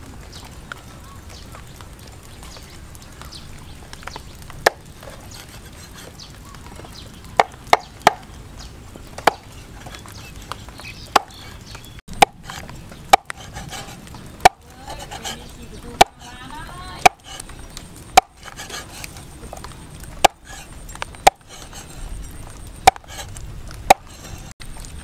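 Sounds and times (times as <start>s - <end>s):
cleaver chopping on wooden board: 7.4s - 8.2s, 9.2s - 9.4s, 11.1s - 11.4s, 12.2s - 15.4s, 16.0s - 16.3s, 17.0s - 17.4s, 18.2s - 18.8s, 20.2s - 20.6s, 21.2s - 21.7s, 22.8s - 23.3s, 23.9s - 24.1s.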